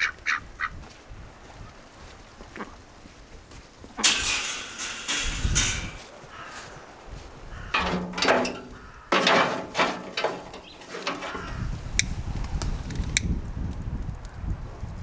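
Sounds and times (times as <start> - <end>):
dry twigs rustling and crackling: 4.0 - 14.4.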